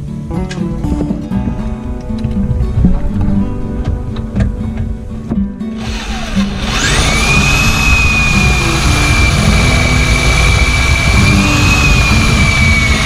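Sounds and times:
cordless drill drilling into metal: 5.8s - 13.0s.

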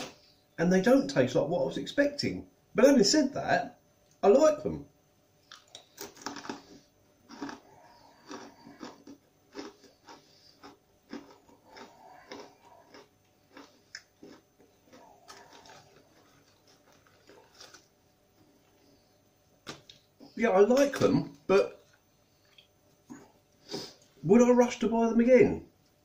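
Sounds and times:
chewing crunchy chips: 5.4s - 18.8s.

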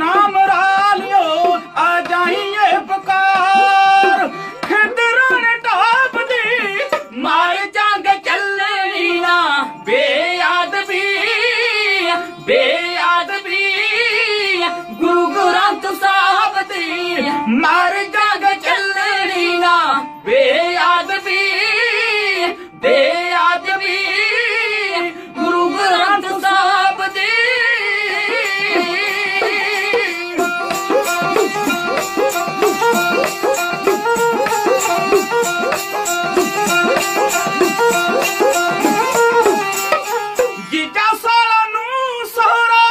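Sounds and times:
men singing: 0.0s - 42.9s
bowed string instrument: 27.5s - 41.0s.

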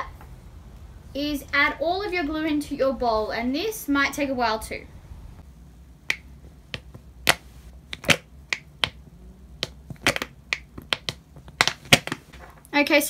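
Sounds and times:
squeeze bottle clicks and pops: 6.1s - 9.0s, 9.6s - 12.2s.

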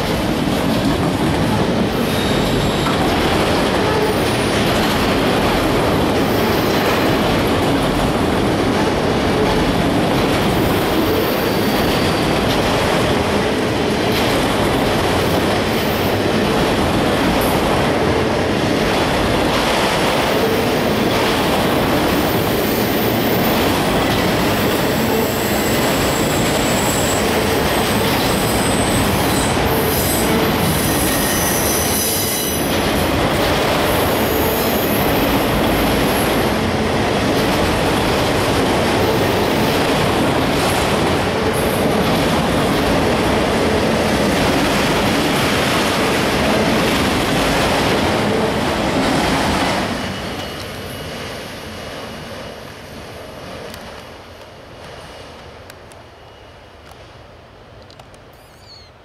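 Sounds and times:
train wheels rumbling on rail: 0.0s - 58.9s
high-pitched wheel squeal: 2.0s - 2.9s.

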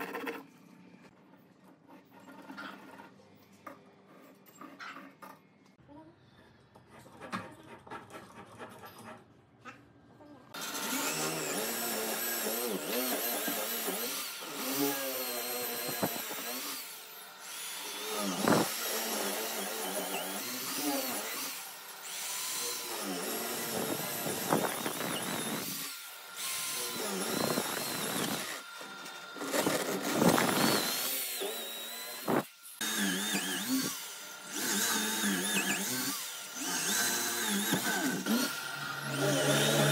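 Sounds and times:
electric drill boring into wood: 10.6s - 39.9s.

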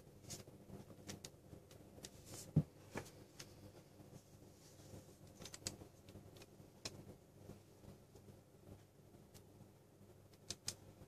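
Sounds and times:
soft clicks: 10.3s - 10.8s.

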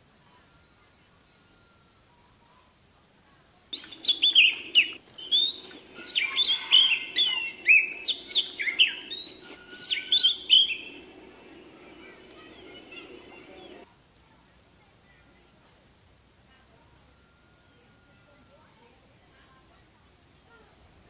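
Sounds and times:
bird singing whistles and trills: 3.7s - 13.8s.

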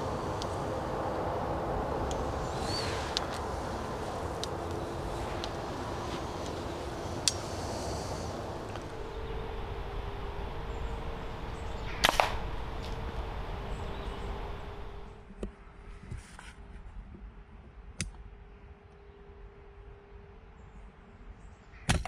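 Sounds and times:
air rifle shot crack: 11.9s - 12.6s.

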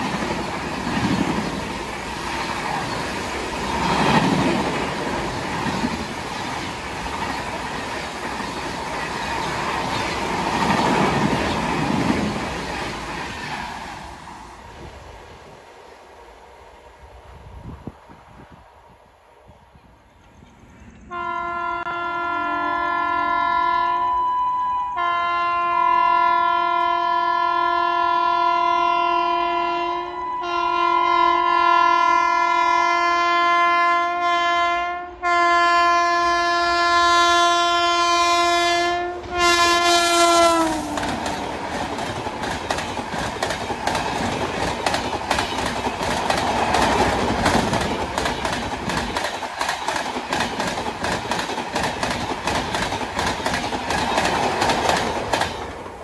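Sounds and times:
train wheels clickety-clack: 0.0s - 14.4s, 40.3s - 56.0s
locomotive horn blasts: 21.1s - 41.0s.

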